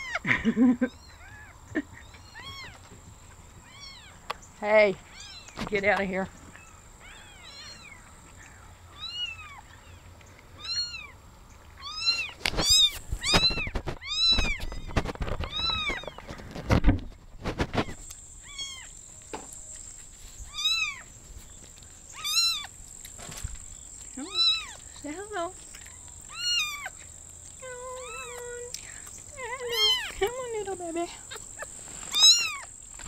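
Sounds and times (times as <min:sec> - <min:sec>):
handling noise on microphone: 0:12.4 - 0:18.1
kitten mewing: 0:24.2 - 0:24.8, 0:29.4 - 0:30.2.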